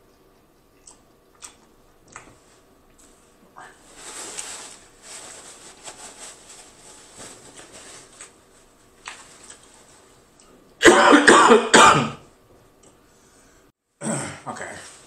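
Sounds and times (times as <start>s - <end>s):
paper napkin rustling: 3.0s - 10.3s
person coughing: 10.8s - 12.3s, 14.0s - 14.5s.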